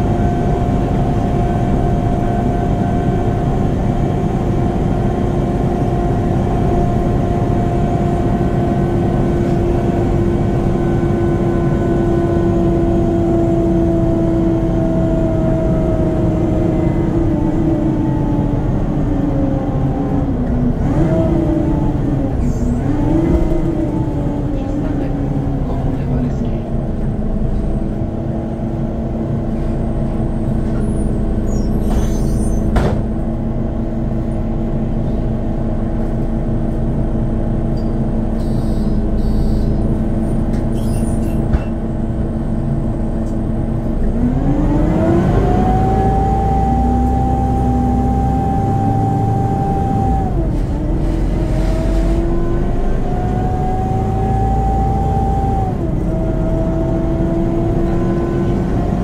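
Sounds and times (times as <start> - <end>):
bus engine running: 0.0 - 59.0.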